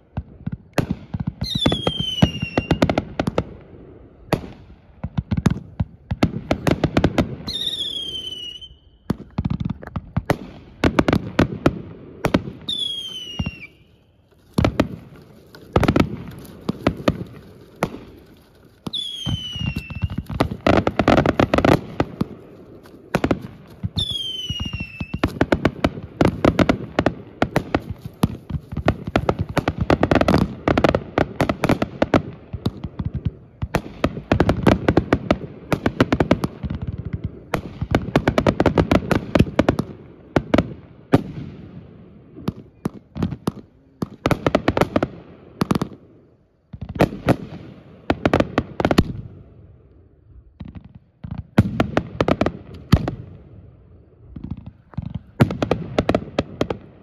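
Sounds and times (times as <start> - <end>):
fireworks bangs and crackling: 0.0 - 57.0
falling high whistle: 7.5 - 9.0, 12.7 - 14.1, 18.9 - 20.3, 24.0 - 25.2.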